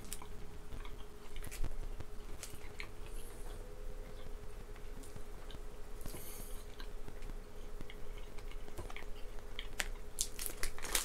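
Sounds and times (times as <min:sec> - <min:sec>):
wrapper rustling: 0:09.8 - 0:11.0.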